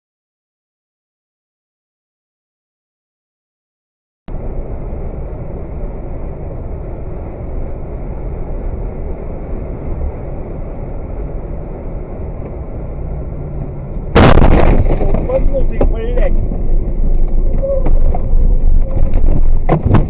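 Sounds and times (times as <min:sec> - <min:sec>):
vehicle road and engine rumble: 0:04.3 - 0:20.0.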